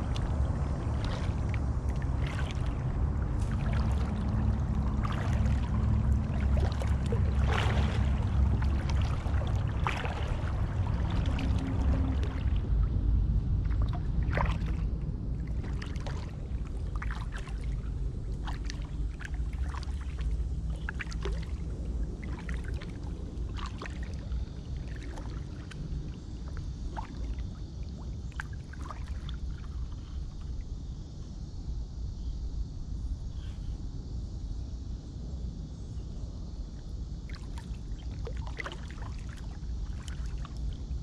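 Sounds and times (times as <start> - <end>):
water drips: 0.0 - 12.7
kayak paddle splashing: 0.0 - 30.2, 37.3 - 41.0
steady low rumble: 0.0 - 41.0.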